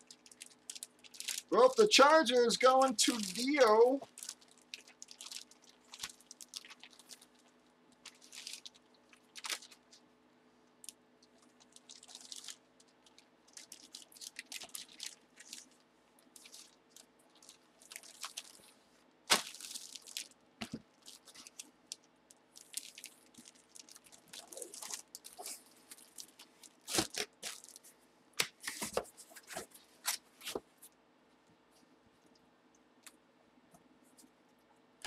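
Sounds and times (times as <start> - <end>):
plastic bag crinkling: 0.0 - 10.0, 10.8 - 27.9
faint electrical hum: 0.0 - 35.0
plastic bag snap: 19.3 - 19.7.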